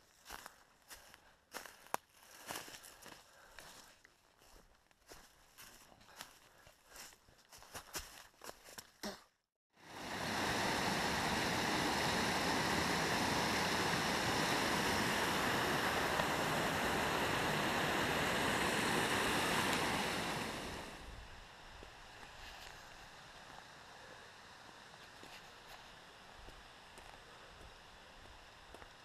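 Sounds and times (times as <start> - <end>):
footsteps on leaf litter: 0.1 - 8.9
stream rushing over rocks: 9.8 - 21.1.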